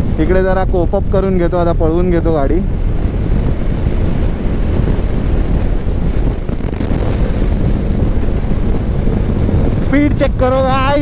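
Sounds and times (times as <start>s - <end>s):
road noise: 0.0s - 11.0s
wind buffeting microphone: 0.0s - 11.0s
motorcycle engine: 2.6s - 10.0s.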